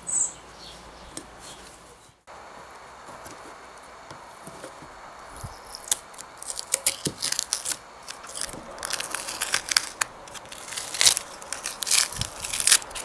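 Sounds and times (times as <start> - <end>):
paper crackling against metal burr: 3.0 - 13.0.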